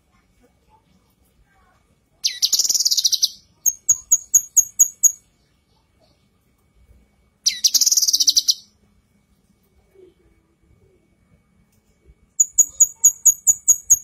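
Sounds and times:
bird chattering trill: 0:02.2 - 0:05.2, 0:07.4 - 0:08.7, 0:12.4 - 0:14.0
bird chirping: 0:02.2 - 0:06.2, 0:07.4 - 0:08.8, 0:12.4 - 0:14.0.

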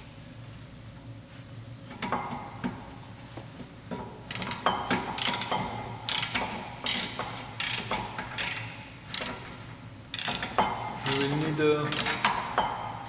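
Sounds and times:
ratchet wrench clicking: 0:05.2 - 0:09.4, 0:10.1 - 0:12.4.

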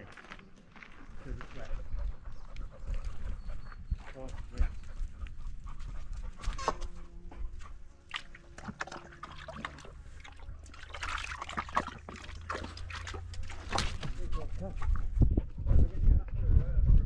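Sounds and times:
dog lapping water: 0:07.5 - 0:15.4
small splashes: 0:08.0 - 0:15.0.

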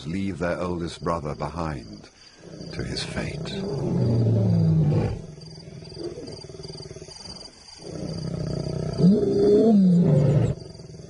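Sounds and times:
lions growling: 0:02.4 - 0:10.8.

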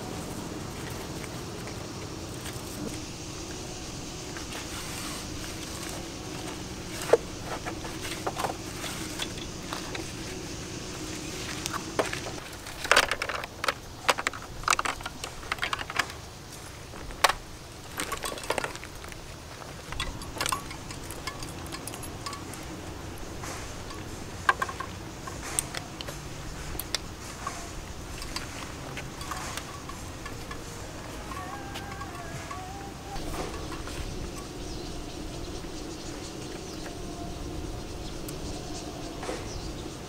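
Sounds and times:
plastic clicks and rattles: 0:11.6 - 0:16.2.

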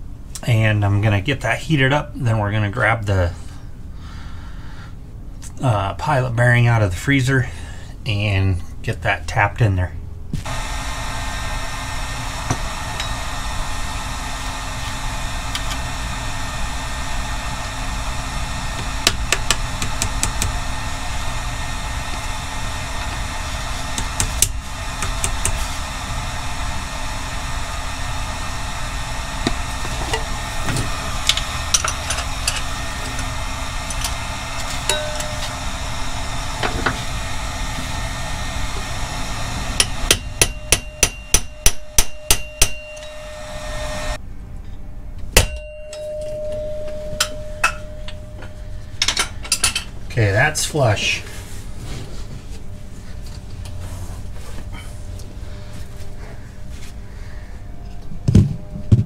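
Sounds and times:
heat tool rushing noise: 0:10.4 - 0:44.2, 0:46.9 - 0:57.1.

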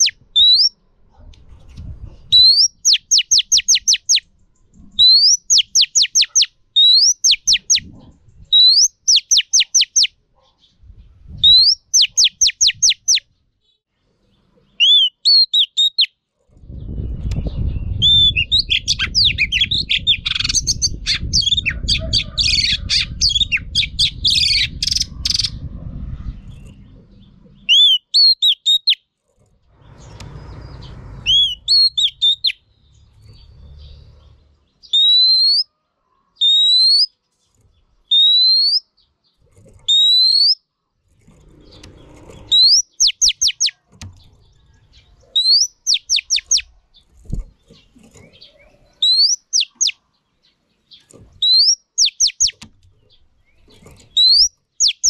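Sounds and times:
bird chattering and whistling: 0:00.0 - 0:00.8, 0:02.3 - 0:04.3, 0:05.0 - 0:10.2, 0:11.4 - 0:13.2, 0:14.8 - 0:16.1, 0:16.9 - 0:25.6, 0:27.6 - 0:29.0, 0:31.3 - 0:32.6, 0:34.8 - 0:35.7, 0:36.4 - 0:37.1, 0:38.1 - 0:38.9, 0:39.8 - 0:40.6, 0:41.8 - 0:43.8, 0:45.0 - 0:46.7, 0:47.8 - 0:50.0, 0:51.4 - 0:52.7, 0:53.5 - 0:55.0
low rumble: 0:16.6 - 0:27.7, 0:29.6 - 0:34.5.

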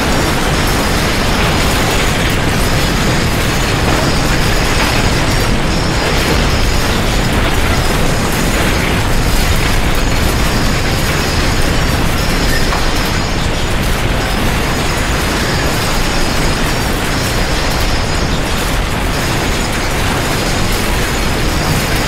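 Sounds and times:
clattering: 0:00.0 - 0:15.8
earthquake rumble and rattle: 0:00.0 - 0:22.0.

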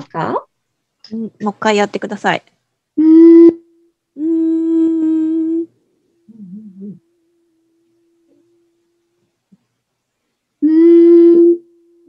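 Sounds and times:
person humming: 0:03.0 - 0:08.9, 0:10.6 - 0:12.0.

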